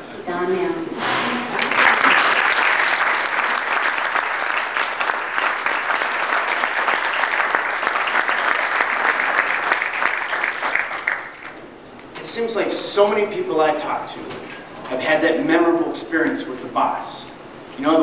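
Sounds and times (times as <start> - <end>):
audience applauding: 1.5 - 11.7.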